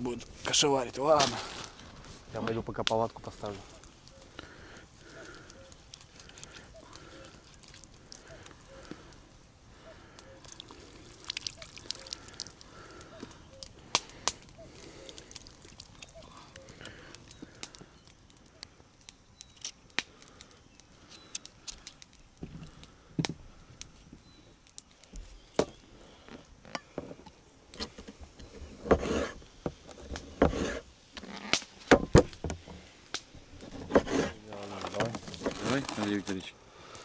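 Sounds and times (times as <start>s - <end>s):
rustling: 0.2s - 9.3s, 24.8s - 36.5s.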